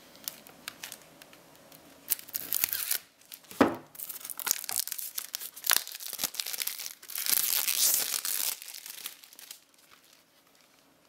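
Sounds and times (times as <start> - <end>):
plastic wrap crinkling and tearing: 0.1 - 11.0.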